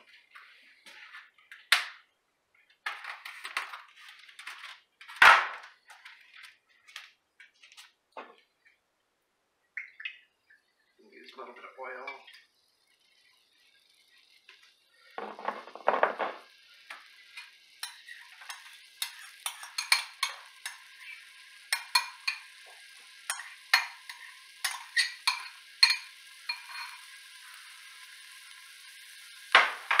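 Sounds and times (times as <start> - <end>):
onion sizzling in oil: 0.0 - 1.7, 10.5 - 30.0
utensil clinking and scraping: 15.2 - 22.5, 23.3 - 27.1.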